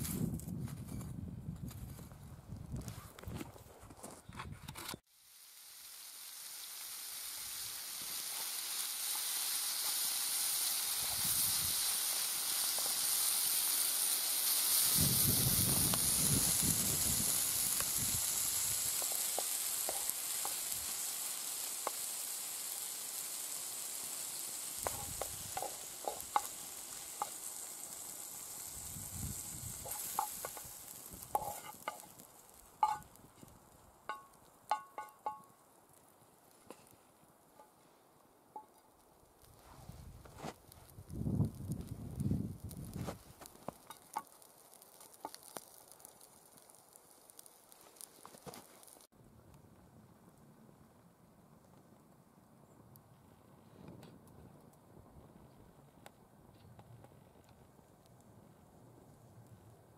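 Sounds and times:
chicken sizzling in frying pan: 5.1 - 35.5, 40.7 - 49.1
wooden utensil scraping pan: 31.3 - 32.1.

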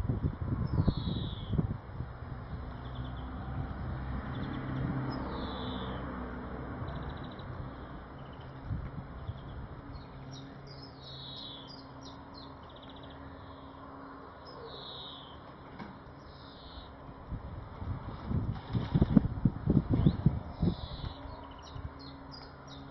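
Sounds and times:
songbird calling: 0.6 - 1.6, 4.3 - 6.1, 9.2 - 15.5, 16.2 - 17.0, 20.0 - 22.9.

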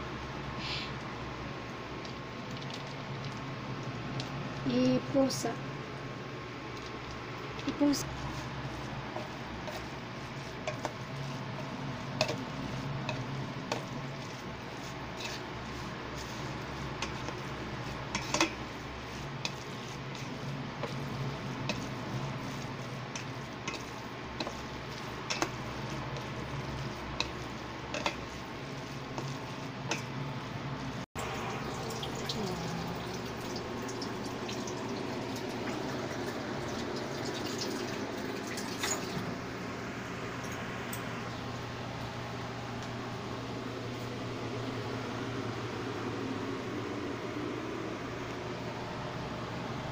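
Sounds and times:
steady low hum: 0.0 - 36.7, 39.2 - 49.9
spatula stirring wet noodles: 1.0 - 39.0.

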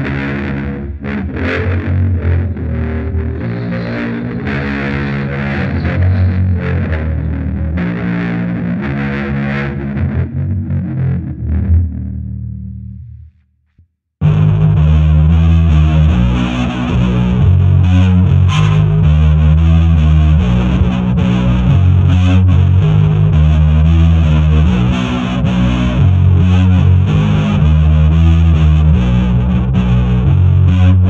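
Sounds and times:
distorted electric guitar riff: 0.0 - 13.2, 14.2 - 31.0
bass: 0.0 - 31.0.

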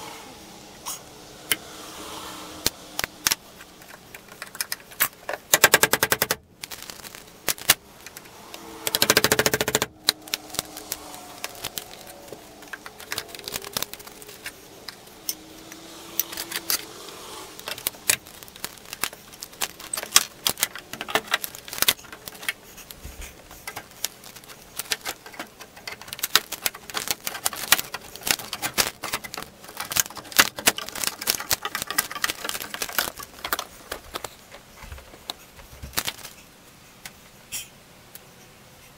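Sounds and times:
rapid sharp tapping: 3.9 - 6.4, 8.9 - 14.3.

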